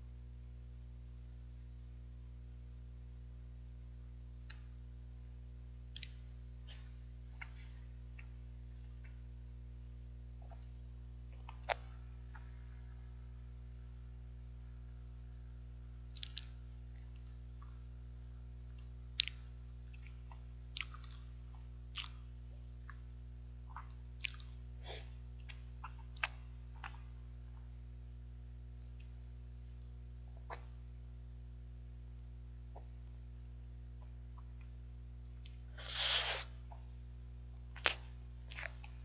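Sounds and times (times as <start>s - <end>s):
low electrical hum: 0.0s - 39.0s
wet mouth smacks and clicks: 5.9s - 6.2s, 16.1s - 16.6s, 19.2s - 19.4s.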